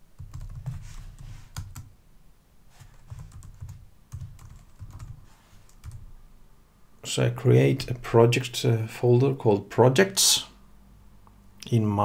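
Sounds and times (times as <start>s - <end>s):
computer keyboard typing: 0.2s - 1.9s, 2.9s - 6.1s.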